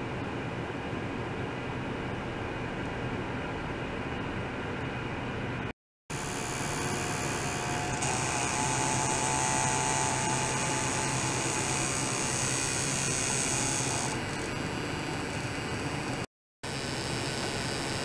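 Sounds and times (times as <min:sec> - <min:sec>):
high-pitched whine: 0:06.1 - 0:18.0.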